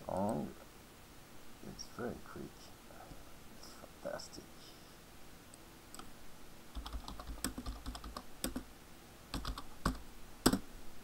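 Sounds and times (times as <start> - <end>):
keyboard typing: 6.7 - 8.6, 9.3 - 10.6.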